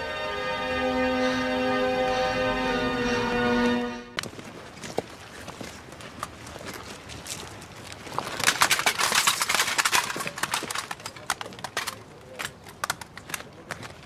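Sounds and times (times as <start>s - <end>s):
crowd shuffling on rubble: 4.2s - 14.0s.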